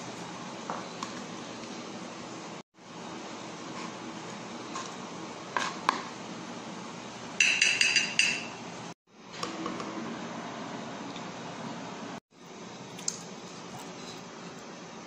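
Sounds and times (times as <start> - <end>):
knife clinking on glass plate: 7.4 - 8.6.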